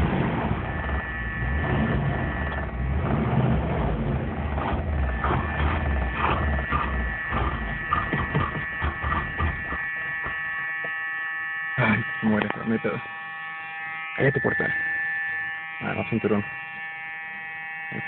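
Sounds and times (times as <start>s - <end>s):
car alarm electric buzz: 0.0s - 3.1s, 3.9s - 18.0s
car engine running unevenly: 0.0s - 10.0s.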